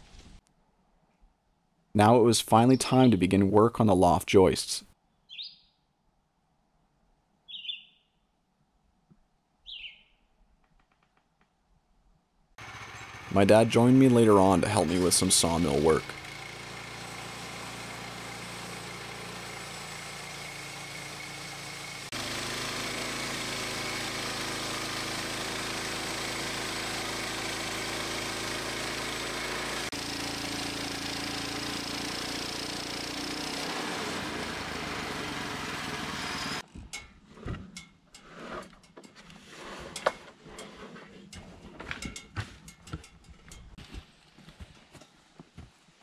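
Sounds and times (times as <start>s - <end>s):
band blade cutting log: 12.6s - 36.6s
sawmill engine running: 12.6s - 36.6s.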